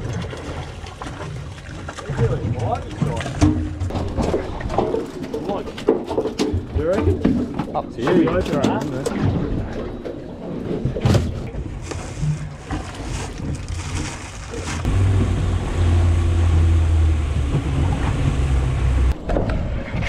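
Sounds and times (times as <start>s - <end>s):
outboard motor running: 14.6s - 19.2s.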